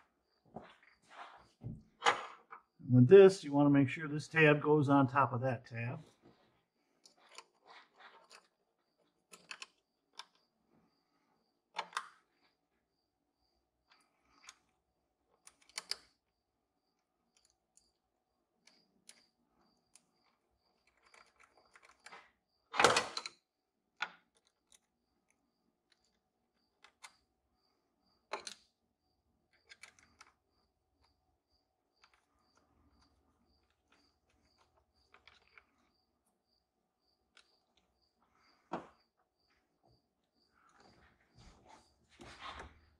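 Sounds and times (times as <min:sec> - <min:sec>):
screwdriver clicks and taps: 0:28.3 - 0:28.6.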